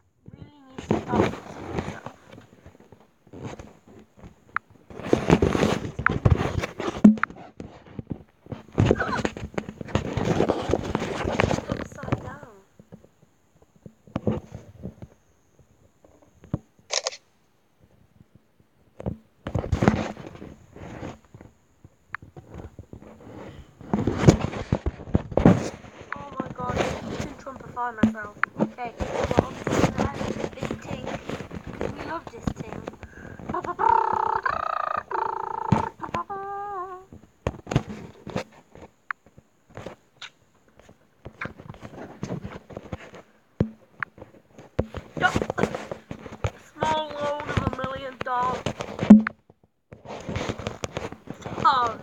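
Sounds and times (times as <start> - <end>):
rustling of bedding: 0.5 - 15.0, 19.6 - 34.5
phone tapping and knocking: 6.9 - 7.4, 48.8 - 49.4
camera shutter sound: 16.9 - 17.3
child humming: 33.5 - 37.2.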